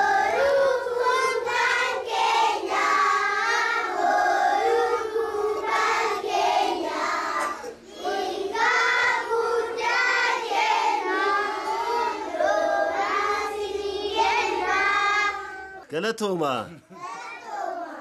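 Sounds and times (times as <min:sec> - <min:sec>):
young children singing in unison: 0:00.0 - 0:15.9, 0:16.9 - 0:18.0.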